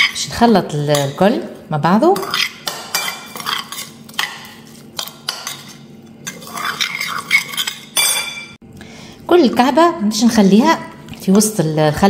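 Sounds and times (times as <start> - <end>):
metal spoon stirring in ceramic bowl: 0.0 - 1.3, 2.0 - 8.6
spoon scraping and clinking bowl: 2.2 - 8.6.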